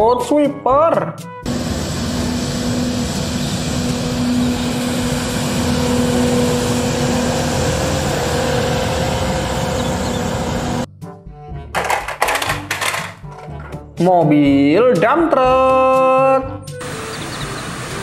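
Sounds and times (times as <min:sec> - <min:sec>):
street sweeper truck running: 0:01.5 - 0:10.9, 0:16.8 - 0:18.0.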